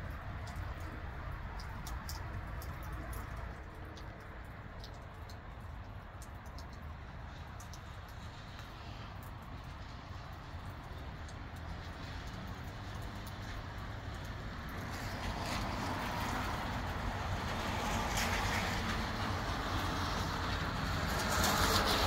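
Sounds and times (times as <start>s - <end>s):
rain shower: 0.0s - 22.0s
wind gusts: 6.2s - 22.0s.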